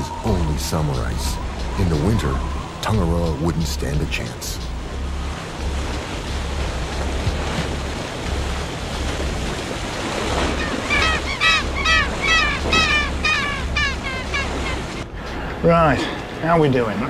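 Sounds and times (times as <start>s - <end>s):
wind and water rushing: 0.0s - 17.0s
seabird calling rapidly: 10.1s - 15.1s.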